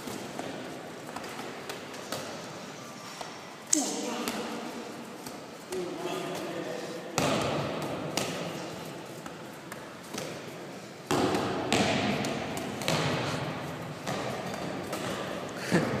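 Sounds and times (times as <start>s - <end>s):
sharp thuds echoing in hall: 3.7s - 8.9s, 9.7s - 16.0s.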